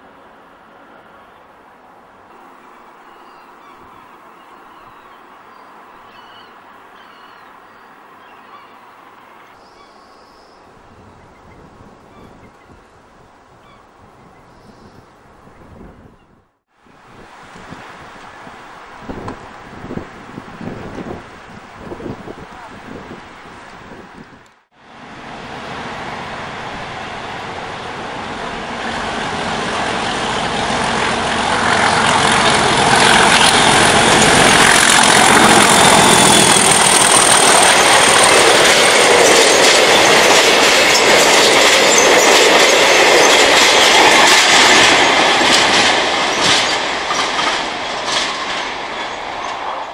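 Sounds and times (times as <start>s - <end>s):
diesel locomotive engine: 24.4s - 49.9s
wheels clattering over rail joints: 31.4s - 49.9s.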